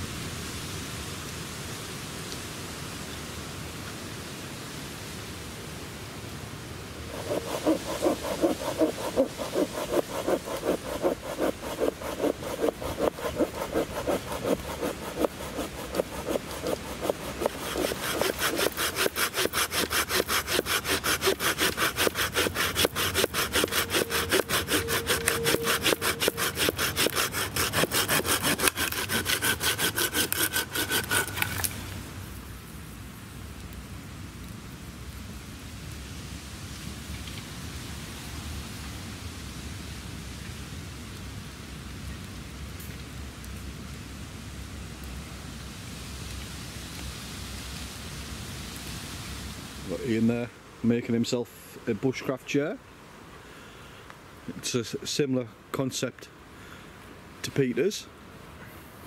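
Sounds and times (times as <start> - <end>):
hand saw cutting branch: 7.1 - 31.9.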